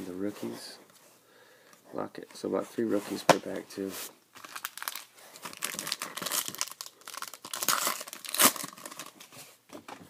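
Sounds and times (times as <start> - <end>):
foil wrapper tearing and crinkling: 4.4 - 9.2.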